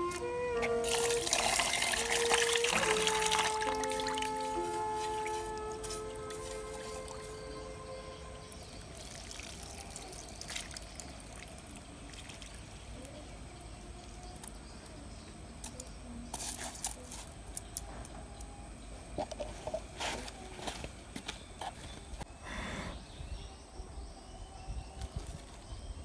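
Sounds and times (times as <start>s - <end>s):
water trickling and dripping: 0.8s - 14.4s.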